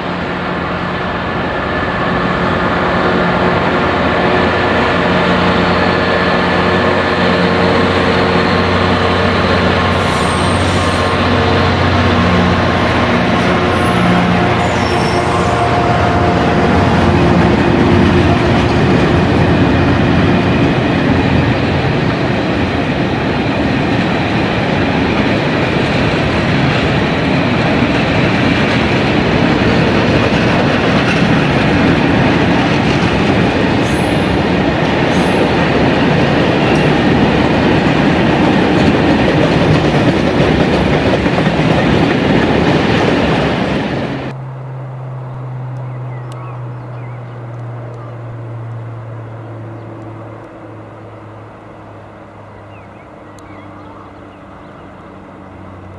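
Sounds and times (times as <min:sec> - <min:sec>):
distant diesel locomotive drone: 0:00.0 - 0:55.9
freight train wheels clattering: 0:01.8 - 0:43.8.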